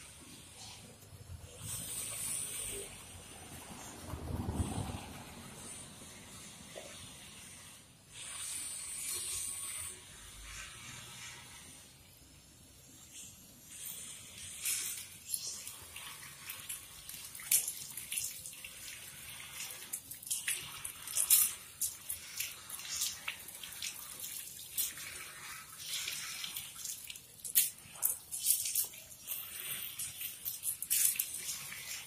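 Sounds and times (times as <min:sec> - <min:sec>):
hose water splashing on tiles: 0:00.0 - 0:32.0.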